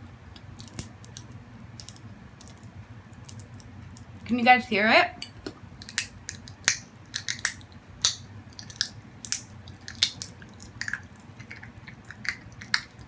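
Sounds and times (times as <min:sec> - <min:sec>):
popping candy crackling in mouth: 0:00.4 - 0:04.3, 0:05.6 - 0:13.0.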